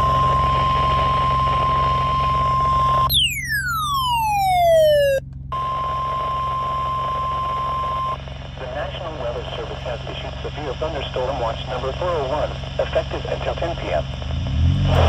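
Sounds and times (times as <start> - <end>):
steady alarm tone: 0.0 - 8.1
falling whistle: 0.0 - 8.2.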